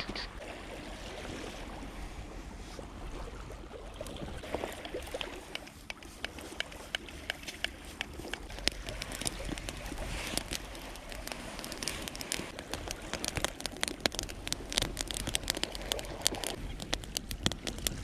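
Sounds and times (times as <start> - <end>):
campfire crackling and popping: 4.4 - 18.0
soft hiss of fire: 7.8 - 18.0.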